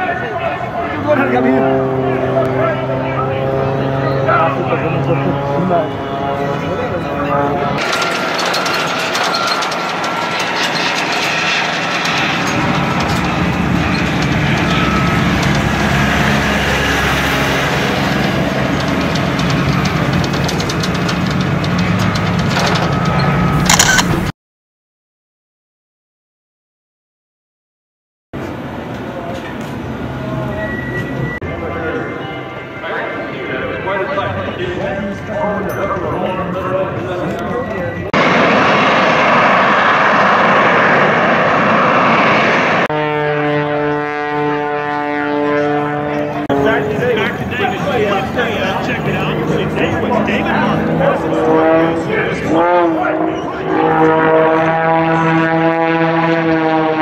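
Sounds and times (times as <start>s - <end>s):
aero engine droning: 0.0s - 24.3s, 28.4s - 57.0s
aircraft flying over roaring: 0.0s - 24.3s, 28.4s - 57.0s
loud sharp crack: 38.2s - 42.9s.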